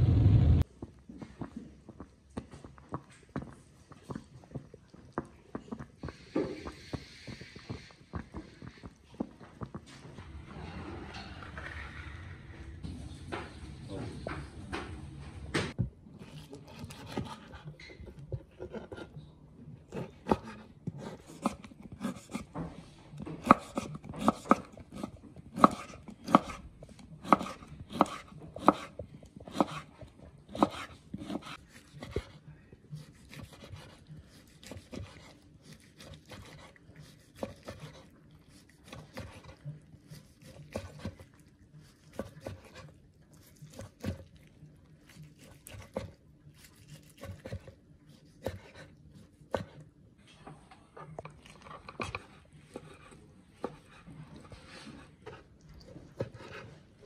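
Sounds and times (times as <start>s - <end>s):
knife cutting on wooden board: 16.2s - 19.2s, 19.9s - 22.6s, 23.4s - 26.6s, 27.2s - 32.4s, 33.0s - 44.3s, 45.2s - 49.8s.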